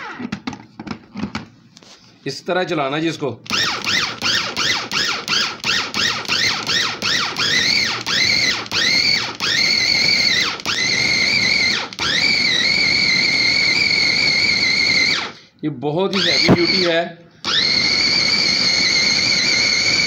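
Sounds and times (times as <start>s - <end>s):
meat chopper motor whining: 3.5s - 15.4s, 16.1s - 20.0s.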